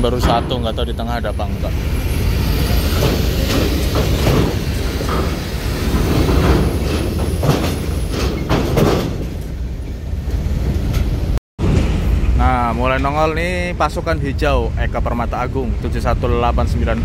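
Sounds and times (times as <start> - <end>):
metallic clanks on ramp: 0.0 - 0.9, 2.9 - 10.0
truck engine rumble: 0.0 - 17.0.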